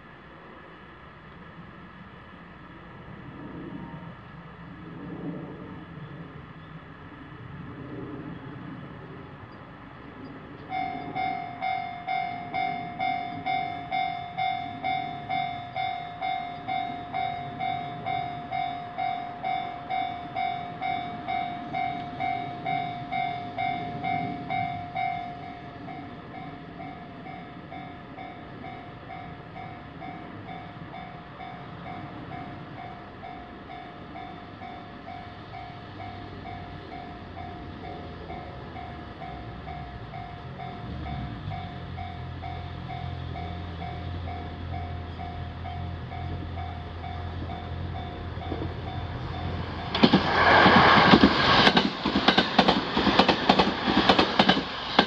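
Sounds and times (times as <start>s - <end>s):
low train rumble: 0.0s - 55.0s
level crossing warning bell: 10.6s - 50.0s.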